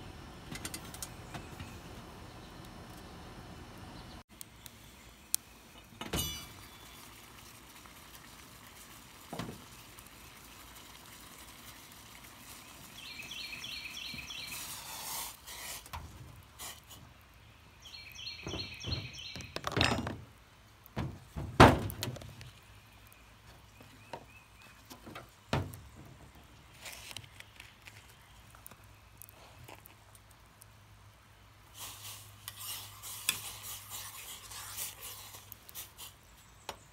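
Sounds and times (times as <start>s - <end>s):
metal pot and lid clinking: 6.0s - 6.7s.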